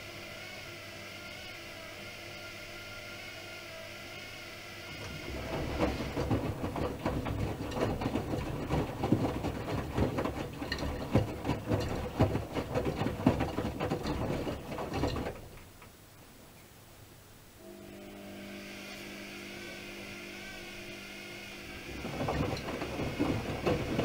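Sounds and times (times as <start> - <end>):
low steady hum: 0.0 - 24.0
laundry tumbling in washing machine: 4.9 - 16.0, 20.4 - 24.0.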